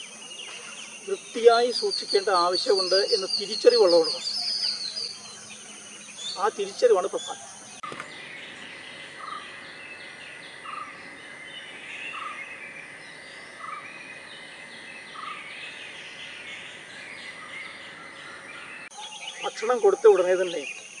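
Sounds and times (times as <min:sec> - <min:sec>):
high-pitched hum: 0:07.7 - 0:18.9
bird chirping clear note: 0:07.8 - 0:18.9.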